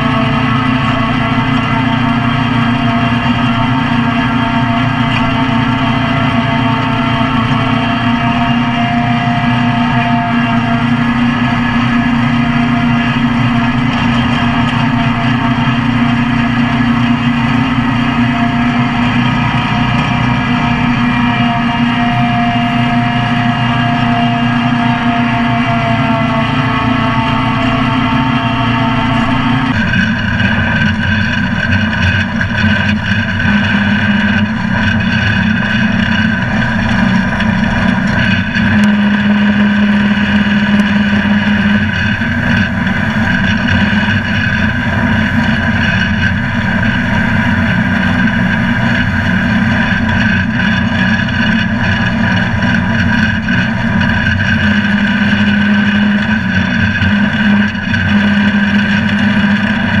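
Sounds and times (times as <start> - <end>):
lawn mower engine drone: 0.0 - 60.0
low hum: 0.0 - 60.0
mower blades cutting grass: 0.0 - 60.0.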